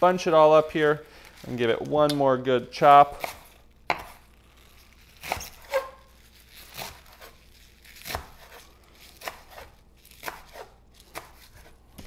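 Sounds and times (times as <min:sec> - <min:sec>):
knife chopping on wooden board: 0:03.1 - 0:04.2, 0:05.2 - 0:06.0, 0:08.0 - 0:08.6, 0:09.2 - 0:12.0.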